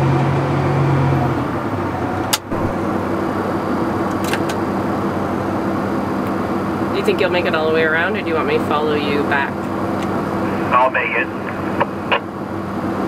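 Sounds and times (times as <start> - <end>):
tractor engine droning: 0.0 - 13.0.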